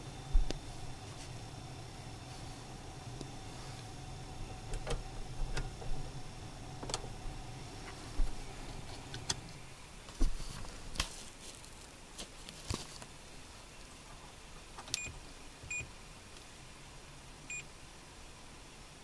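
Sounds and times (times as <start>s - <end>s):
low hum in car cabin: 0.0s - 11.0s.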